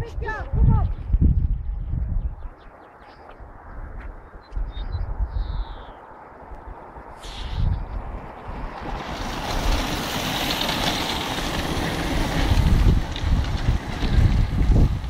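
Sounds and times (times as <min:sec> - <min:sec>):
wind buffeting microphone: 0:00.0 - 0:15.0
bicycle tyres on brick paving: 0:06.5 - 0:15.0.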